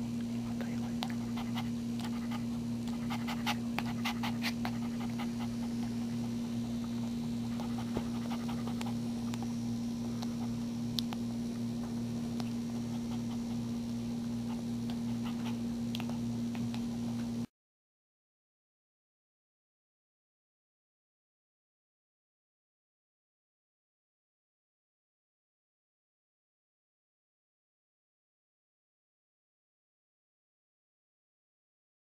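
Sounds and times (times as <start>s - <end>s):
low electrical hum: 0.0s - 17.5s
dog panting: 0.6s - 9.6s, 12.4s - 17.3s.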